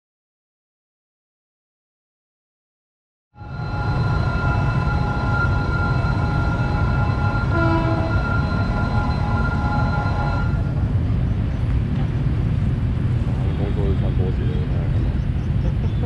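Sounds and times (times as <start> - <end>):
railway warning signal ringing: 3.4 - 10.9
low rumble: 3.4 - 16.0.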